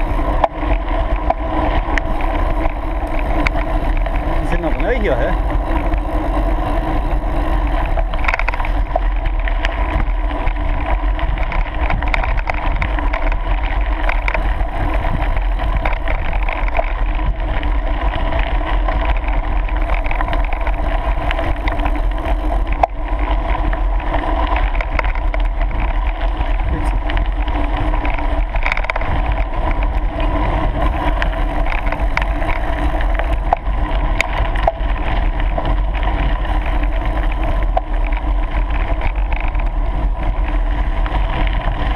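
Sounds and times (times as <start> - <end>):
bike clicks and knocks: 0.0 - 41.9
tyres rolling over gravel: 0.0 - 41.9
wind rumble on microphone: 0.0 - 41.9.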